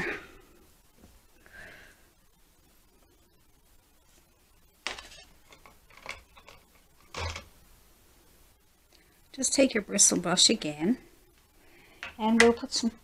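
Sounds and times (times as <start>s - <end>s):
painting supplies clicking and scraping: 4.8s - 7.5s.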